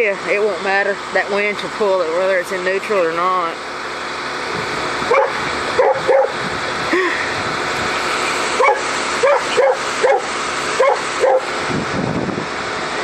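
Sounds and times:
dog barking: 5.1s - 6.4s, 8.6s - 11.5s.

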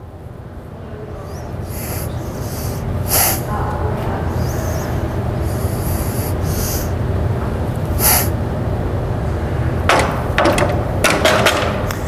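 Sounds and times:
steady low rumble: 0.0s - 9.9s
hard hissing breaths: 1.1s - 8.6s.

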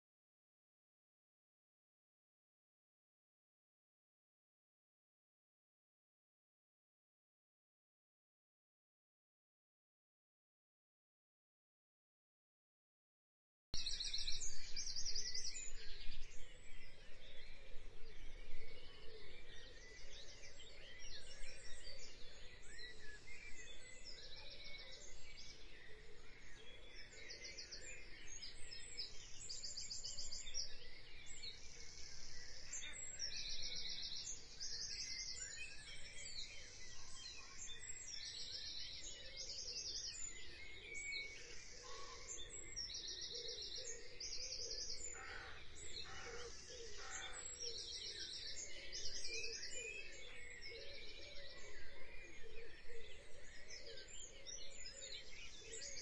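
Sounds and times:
birds chirping and trilling: 13.8s - 56.0s.

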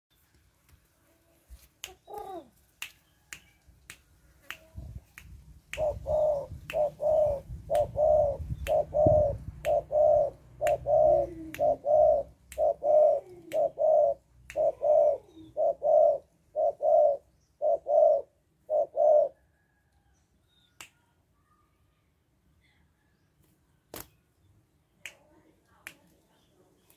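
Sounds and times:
finger snaps: 1.8s - 6.0s, 6.6s - 6.9s, 7.7s - 8.0s, 9.6s - 9.8s, 10.6s - 11.8s, 12.5s - 12.8s, 13.4s - 13.7s, 14.4s - 14.7s, 20.8s - 21.0s, 25.0s - 26.1s
dove cooing: 1.9s - 2.6s, 5.8s - 19.8s.

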